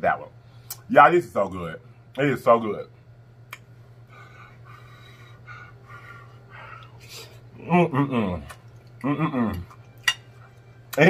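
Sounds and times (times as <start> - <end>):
man chewing food: 3.4 - 7.5, 8.2 - 11.0.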